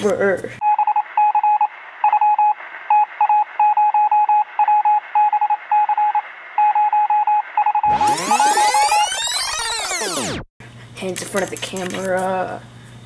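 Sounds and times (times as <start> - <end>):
morse code beeping: 0.6 - 10.3.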